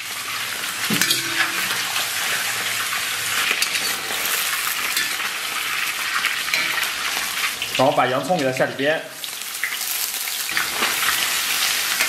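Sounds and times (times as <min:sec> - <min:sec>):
meat sizzling in hot oil: 0:00.0 - 0:12.0
metal spatula scraping wok: 0:00.9 - 0:02.6, 0:03.4 - 0:07.4.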